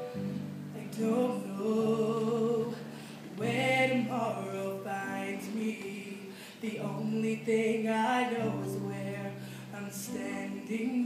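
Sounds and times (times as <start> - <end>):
woman singing a slow ballad: 0.0 - 11.0.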